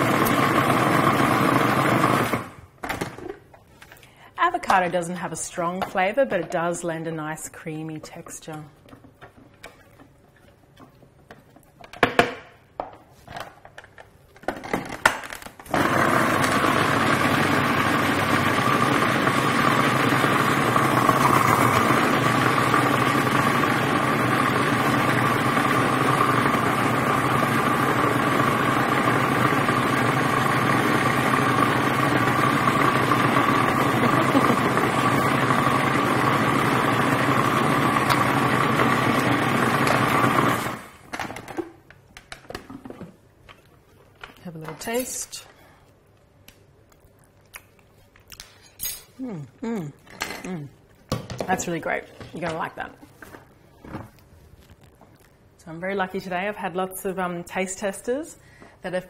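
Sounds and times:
food processor motor running: 0.0 - 2.6, 15.7 - 41.1.

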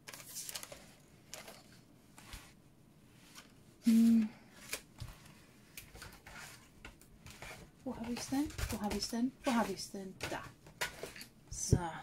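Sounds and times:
paper rustling and sliding: 0.0 - 2.6, 3.2 - 9.8
woman humming: 3.8 - 4.4.

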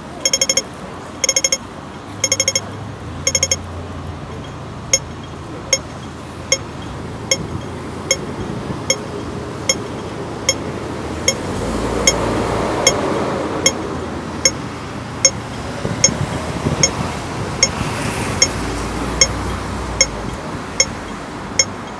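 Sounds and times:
crossing signal rapid beeps: 0.1 - 21.9
crossing signal single beeps: 0.2 - 3.7, 4.3 - 12.2, 13.6 - 14.6, 15.2 - 17.0, 18.4 - 18.6, 19.2 - 21.9.

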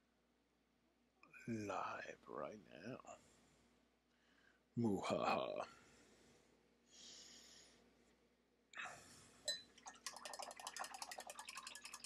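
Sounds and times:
faint breathing: 3.1 - 4.7, 5.7 - 8.0, 8.8 - 9.5.

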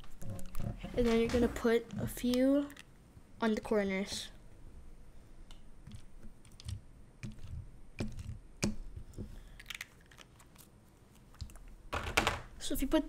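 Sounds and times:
plastic parts clicking: 0.0 - 2.9, 5.4 - 12.5.

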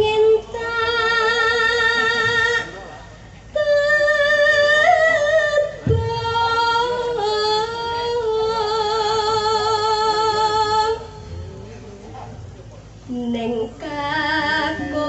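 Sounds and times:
woman singing long notes: 3.6 - 11.3, 13.1 - 15.0.

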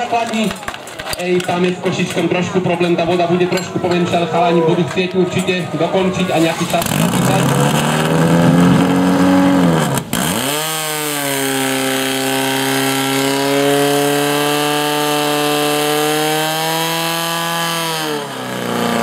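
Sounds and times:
pump engine running at high revs: 6.4 - 19.0.

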